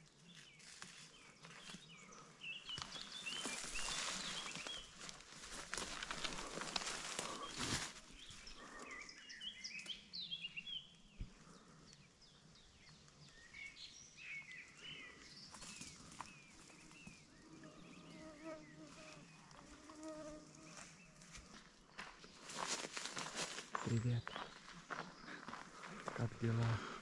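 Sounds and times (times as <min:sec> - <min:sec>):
songbirds chirping: 0:00.0 - 0:27.0
fly buzzing: 0:18.0 - 0:20.8.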